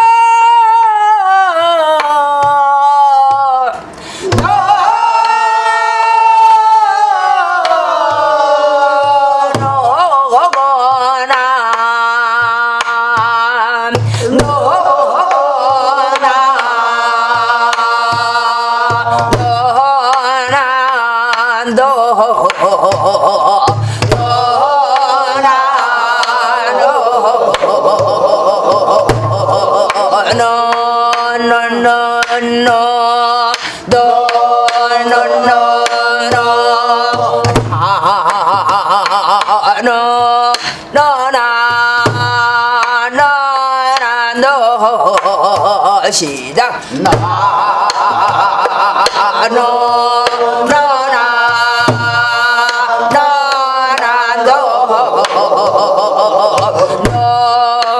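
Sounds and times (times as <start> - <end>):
woman singing with wide vibrato: 0.0 - 57.9
deep drum thumps: 4.3 - 4.7, 17.3 - 19.8, 22.9 - 24.6, 28.0 - 30.6, 36.2 - 38.8, 41.7 - 42.6, 47.0 - 48.6, 51.5 - 53.2, 56.6 - 57.6.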